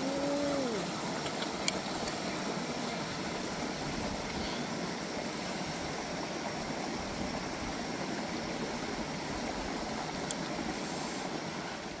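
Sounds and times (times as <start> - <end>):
water flowing: 0.0 - 12.0
faint tick: 10.2 - 10.6.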